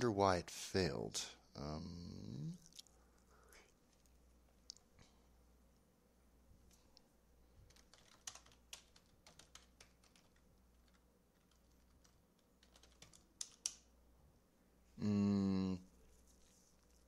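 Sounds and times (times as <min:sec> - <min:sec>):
faint keyboard typing: 0:06.6 - 0:13.9, 0:16.1 - 0:17.0.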